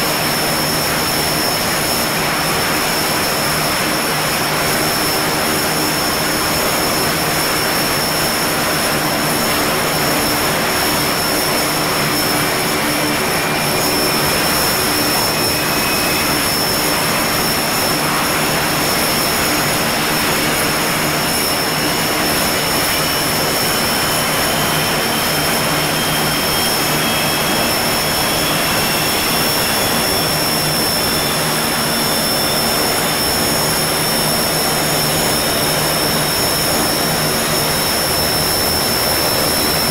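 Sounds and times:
propeller drone: 0:00.0 - 0:39.9
turbine whine: 0:00.0 - 0:39.9
faint rising whistle: 0:07.6 - 0:39.9.

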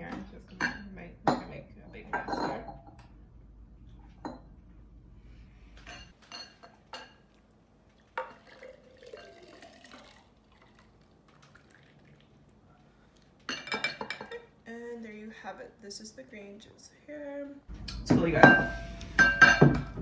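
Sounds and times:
glass clinking against glass: 0:02.1 - 0:03.0, 0:05.9 - 0:07.2, 0:13.5 - 0:14.5, 0:18.4 - 0:20.0
juice trickling and dripping: 0:07.2 - 0:13.6.

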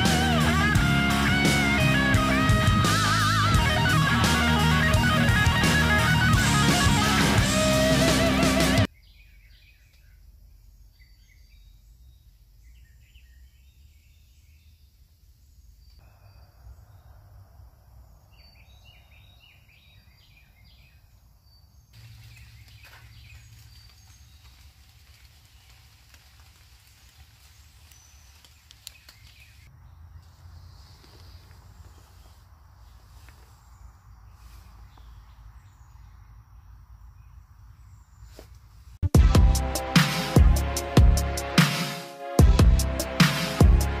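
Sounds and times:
birds chirping: 0:00.0 - 0:25.9, 0:27.4 - 0:41.5.

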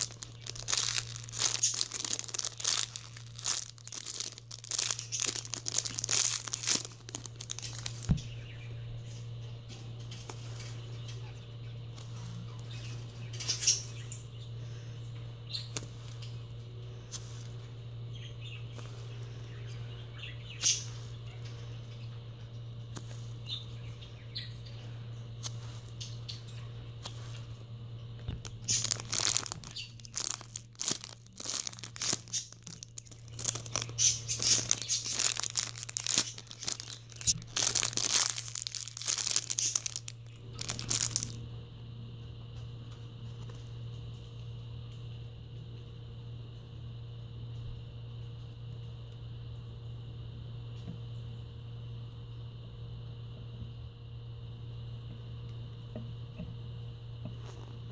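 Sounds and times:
foam toys squished crinkling: 0:00.0 - 0:08.3, 0:28.3 - 0:41.4
steady low hum: 0:00.0 - 0:57.9.

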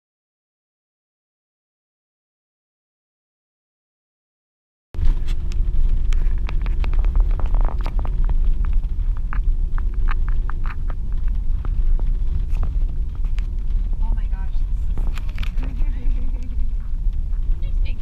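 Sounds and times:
tyre and wind rumble in car: 0:05.0 - 0:18.0.

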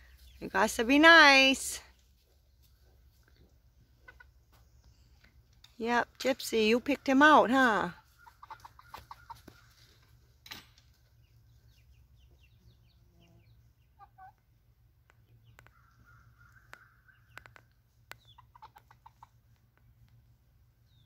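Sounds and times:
chicks peeping: 0:07.1 - 0:09.9, 0:11.1 - 0:14.5, 0:15.1 - 0:19.4.

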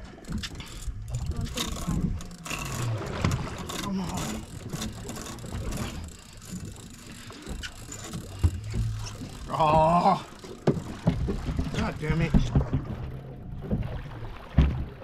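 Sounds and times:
boat and water noise: 0:00.0 - 0:15.0
fishing reel gears clicking: 0:00.1 - 0:11.0.

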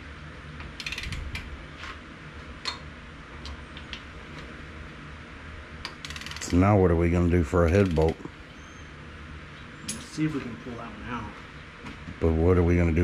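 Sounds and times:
low steady hum: 0:00.0 - 0:13.0
ratchet wrench clicking: 0:00.8 - 0:01.4, 0:05.8 - 0:06.6.

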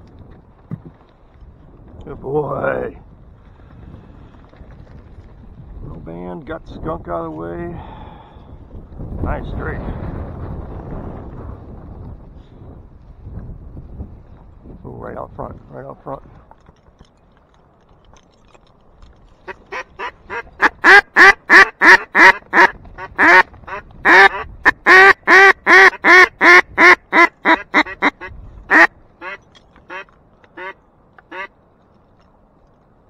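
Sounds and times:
duck call quacks: 0:19.5 - 0:31.5.

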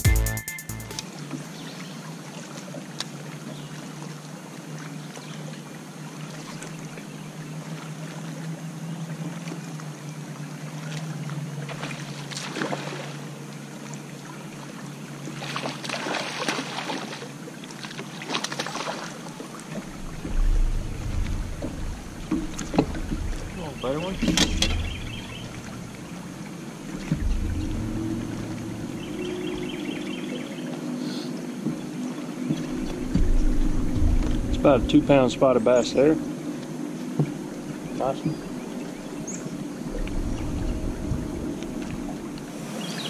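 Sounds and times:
fish splashing at water surface: 0:15.4 - 0:29.3
low thumps in boat: 0:19.6 - 0:30.1, 0:31.6 - 0:38.6
steady low hum: 0:19.8 - 0:30.7, 0:32.4 - 0:42.6.

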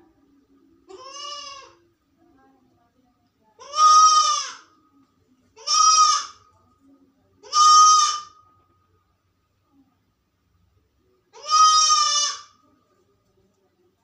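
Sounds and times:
goat kid bleating: 0:00.9 - 0:01.8, 0:03.6 - 0:04.7, 0:05.6 - 0:06.4, 0:07.4 - 0:08.4, 0:11.4 - 0:12.6.

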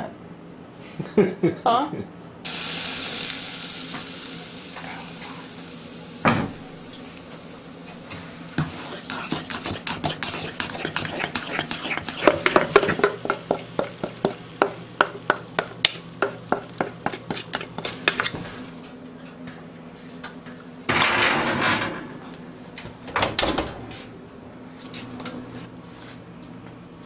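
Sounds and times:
utensil clinking metal bowl: 0:09.1 - 0:18.3
skillet scraping onto oven rack: 0:20.9 - 0:22.2.

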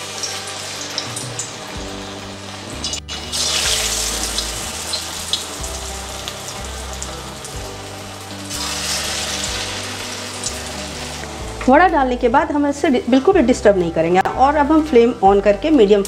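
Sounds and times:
food sizzling in hot oil: 0:00.0 - 0:12.8.

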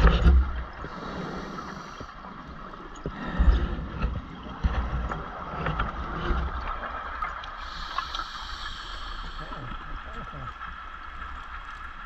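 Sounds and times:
diver in-breath hissing: 0:00.9 - 0:02.2, 0:07.6 - 0:09.8.

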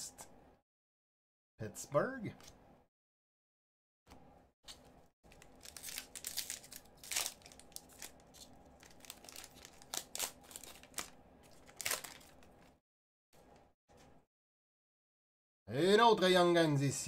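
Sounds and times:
plastic wrapper crinkling: 0:05.3 - 0:12.8.

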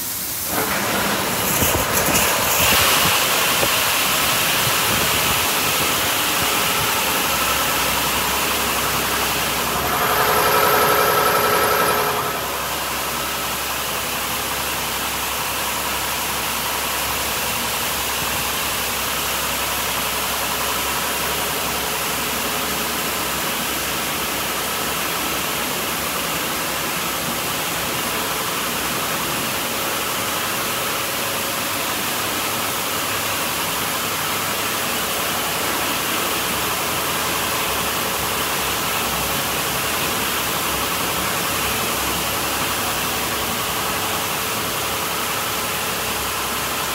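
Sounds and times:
water spray hissing against car: 0:00.0 - 0:11.0
car wash machine running: 0:00.0 - 0:46.9.

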